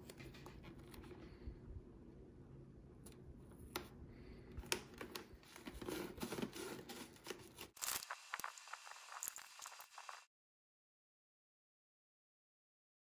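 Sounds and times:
low background hum: 0:00.0 - 0:07.6.

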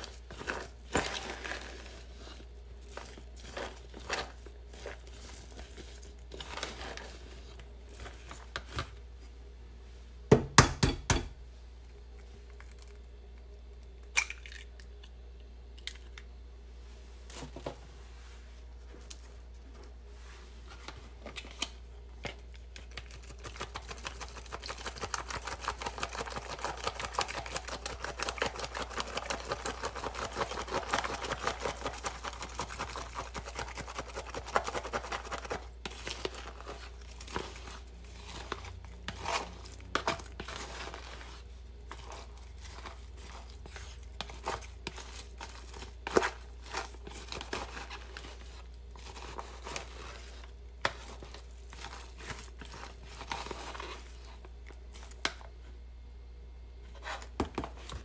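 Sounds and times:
chopsticks scraping batter: 0:00.0 - 0:08.9, 0:22.6 - 0:55.1.

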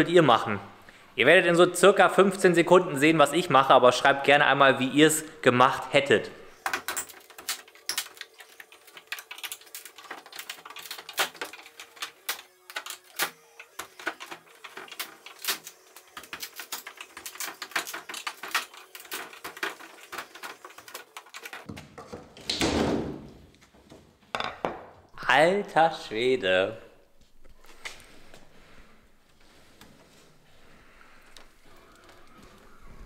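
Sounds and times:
clicks and knocks of unpacking: 0:06.6 - 0:22.6.

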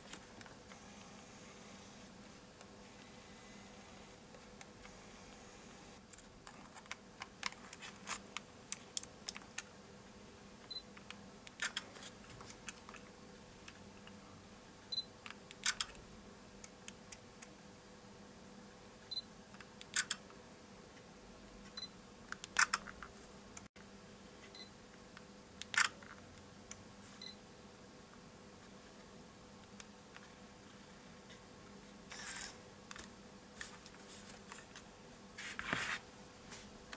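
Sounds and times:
camera shutter: 0:32.1 - 0:32.6.

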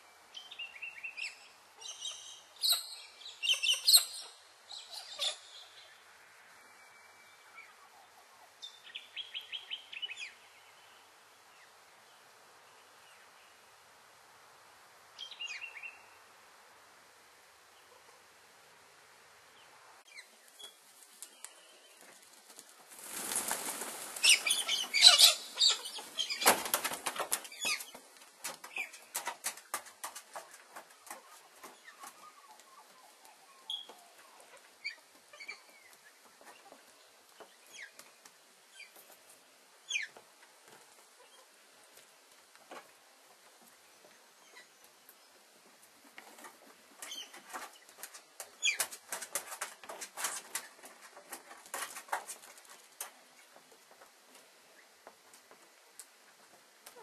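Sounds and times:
rustling on grass: 0:20.2 - 0:29.7
wings flapping: 0:22.1 - 0:31.3.

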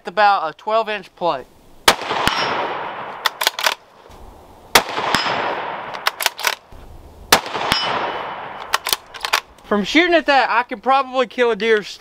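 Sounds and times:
rifle shots echoing: 0:01.8 - 0:03.9, 0:04.7 - 0:06.7, 0:07.3 - 0:09.5
bullet hitting steel plate: 0:02.0 - 0:03.0, 0:04.8 - 0:06.0, 0:07.4 - 0:08.7
rifle bolt clicks: 0:03.2 - 0:03.8, 0:05.1 - 0:06.7, 0:07.4 - 0:09.6.

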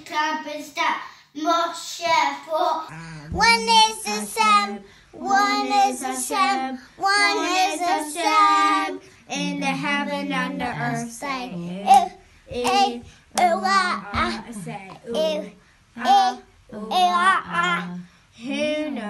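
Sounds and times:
child singing: 0:00.0 - 0:19.0.

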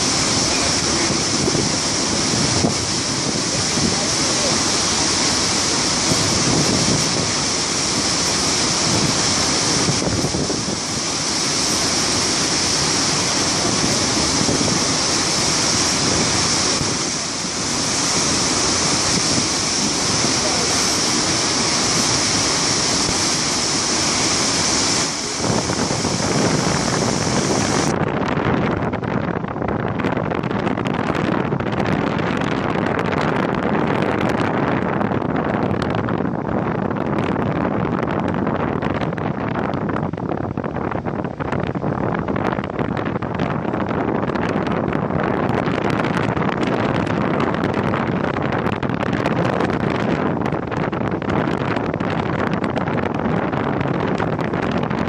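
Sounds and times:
waterfall rushing: 0:00.0 - 0:28.0, 0:39.0 - 0:55.0
wind buffeting the microphone: 0:00.0 - 0:55.0.

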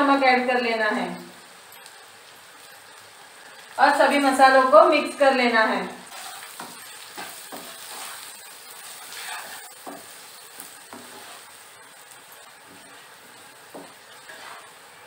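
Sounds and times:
vegetables sizzling in hot oil: 0:00.0 - 0:15.0
spatula knocking against pan: 0:13.7 - 0:14.0.

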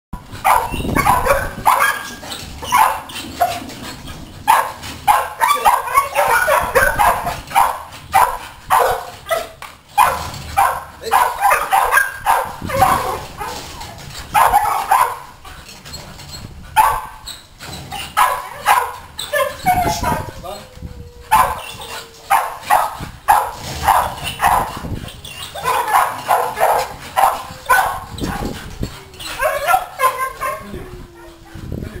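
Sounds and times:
dog barking: 0:00.4 - 0:03.6, 0:04.5 - 0:13.6, 0:14.3 - 0:15.3, 0:16.8 - 0:17.2, 0:18.2 - 0:20.3, 0:21.3 - 0:21.6, 0:22.3 - 0:24.8, 0:25.5 - 0:28.5, 0:29.4 - 0:30.6.

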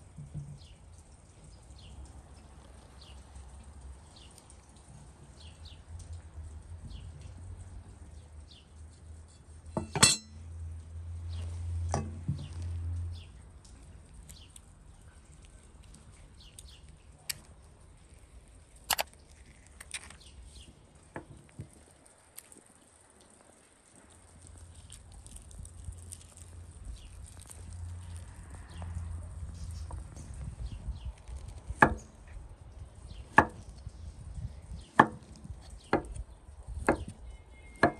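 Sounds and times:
knife and spoon knocking on wooden board: 0:09.8 - 0:10.4.

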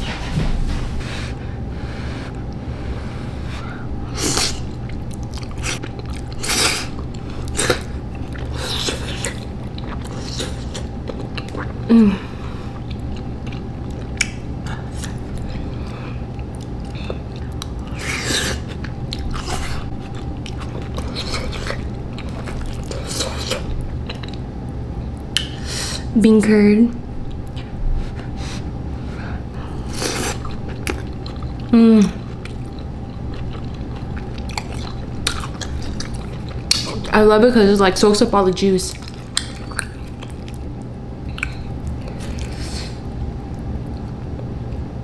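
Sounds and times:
chewing: 0:04.2 - 0:25.6, 0:29.5 - 0:37.2, 0:38.9 - 0:44.9.

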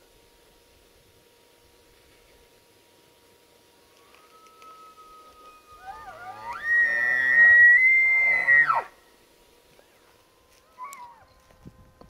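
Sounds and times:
elk bugling: 0:04.0 - 0:09.0.

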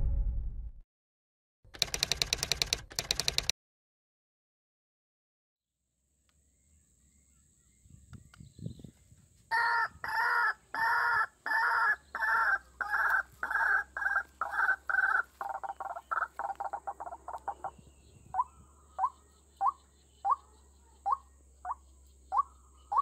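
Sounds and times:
waterhen calling: 0:09.5 - 0:17.7.

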